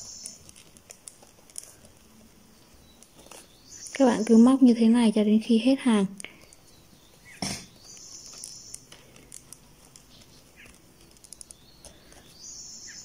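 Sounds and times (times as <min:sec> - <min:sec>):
faint chirps: 0:01.6 - 0:04.8, 0:06.2 - 0:13.0
crochet hook working yarn: 0:07.2 - 0:12.4.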